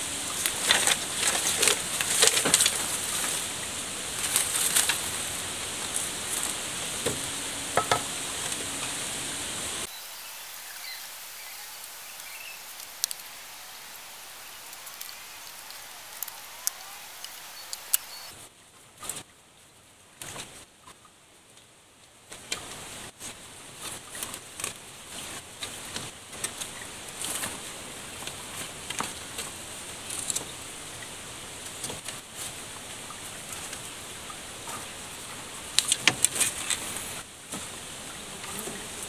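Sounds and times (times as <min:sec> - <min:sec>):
steady high hiss: 0:00.0 - 0:18.4
bamboo strips clicking and rustling: 0:00.3 - 0:03.5, 0:04.2 - 0:07.2, 0:10.5 - 0:18.3, 0:35.7 - 0:37.2.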